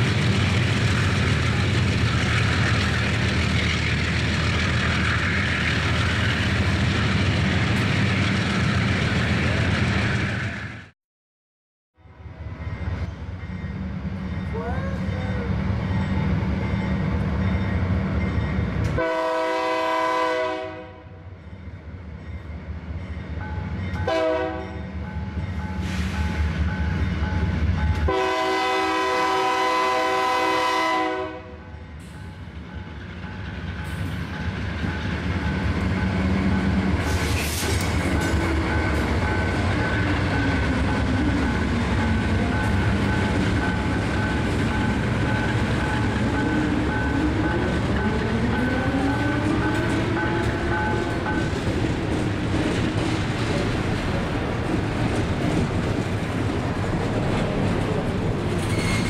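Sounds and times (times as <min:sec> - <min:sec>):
locomotive air horn blasts: 0:19.0 - 0:21.2, 0:24.1 - 0:24.7, 0:28.1 - 0:31.6
wheels clattering on rails: 0:32.7 - 0:59.0.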